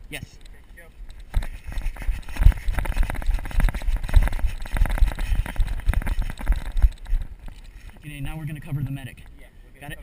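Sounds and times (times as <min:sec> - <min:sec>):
footsteps running on gravel: 0:01.4 - 0:07.3.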